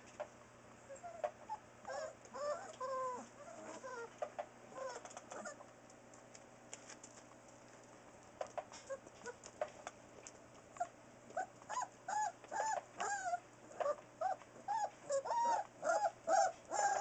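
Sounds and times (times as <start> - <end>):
puppies whining and squeaking: 0.8 - 5.7, 8.8 - 9.5, 10.7 - 17.0.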